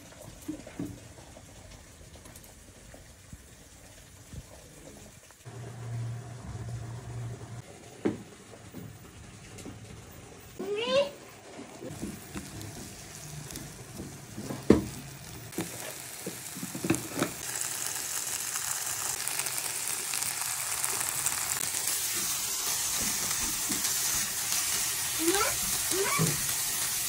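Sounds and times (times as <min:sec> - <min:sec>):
vegetables sizzling in a pan: 0:10.6 - 0:27.0.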